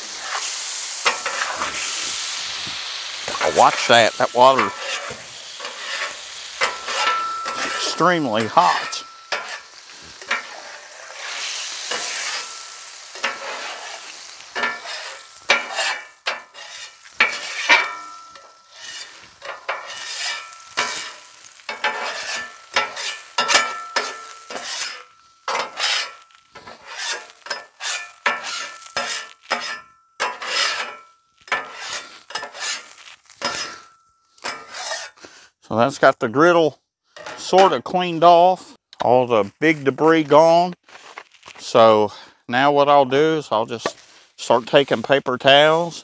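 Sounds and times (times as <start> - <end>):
metal scraper scraping griddle: 0.0 - 2.6, 3.2 - 35.2, 37.2 - 37.9
water sizzling on hot griddle: 0.0 - 35.2, 44.0 - 46.0.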